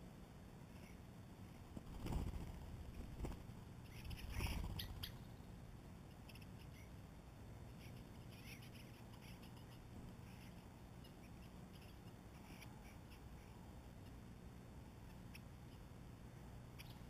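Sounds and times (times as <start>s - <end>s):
rustle: 0.0s - 17.0s
wings fluttering: 0.8s - 5.3s
high bird chirps: 3.8s - 5.5s, 7.8s - 13.2s.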